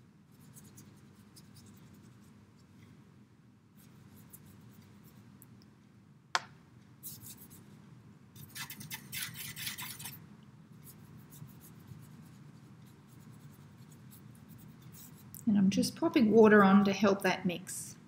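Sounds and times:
paintbrush scrubbing: 0.3s - 2.7s, 7.0s - 7.6s, 8.4s - 10.2s, 10.8s - 15.4s
sharp tap: 6.4s - 6.6s.

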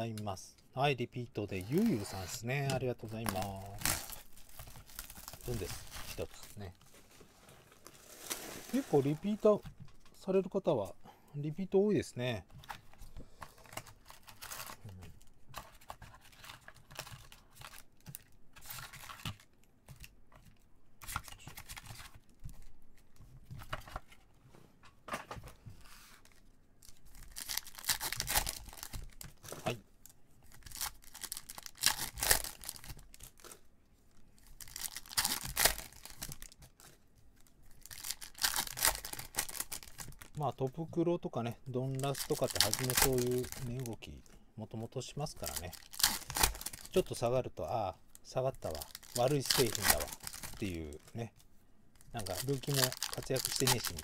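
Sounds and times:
foil packs crinkling: 1.5s - 9.6s, 13.6s - 14.9s, 26.8s - 29.8s, 30.5s - 33.6s, 34.4s - 40.7s, 41.7s - 44.0s, 45.2s - 51.2s, 52.0s - 54.0s
wrapper tearing: 1.7s - 6.7s, 7.8s - 9.4s, 26.3s - 29.7s, 30.5s - 33.6s, 34.4s - 40.4s, 42.0s - 44.0s, 45.4s - 47.3s, 48.2s - 51.1s, 52.0s - 54.0s.

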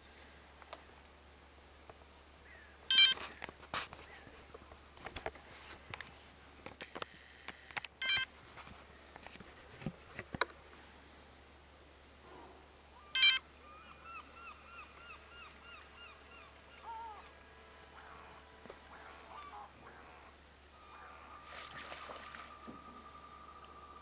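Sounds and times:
short electronic beeps: 2.9s - 3.2s, 8.0s - 8.3s, 13.2s - 13.4s.

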